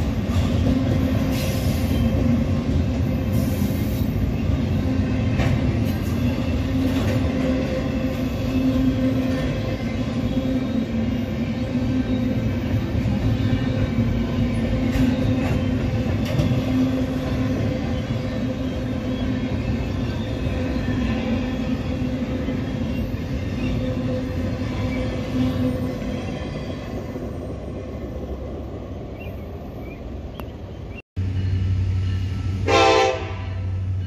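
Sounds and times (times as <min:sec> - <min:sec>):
train clanks: 0:00.0 - 0:27.7
train wheels rumbling on rail: 0:00.0 - 0:34.0.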